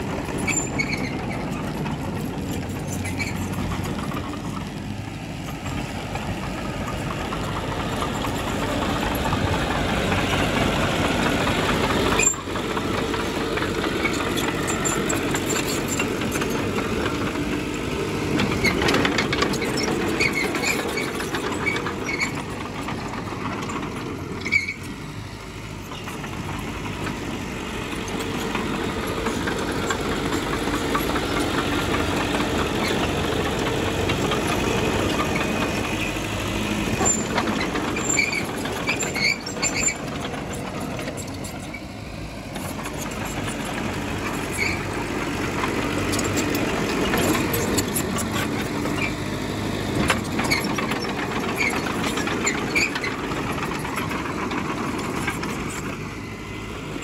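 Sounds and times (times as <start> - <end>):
diesel engine of heavy machinery: 0.0 - 57.0
short high squeaks: 0.4 - 1.7, 2.9 - 3.6, 12.1 - 12.5, 18.5 - 22.6, 24.4 - 24.9, 36.9 - 40.1, 44.3 - 44.9.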